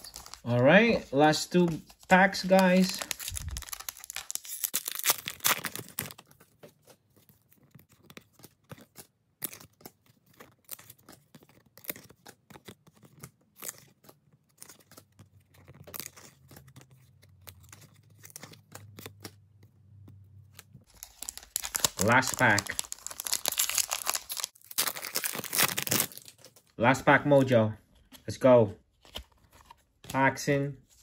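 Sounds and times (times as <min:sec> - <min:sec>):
wrapper tearing: 0:02.3 - 0:06.4, 0:20.8 - 0:26.7.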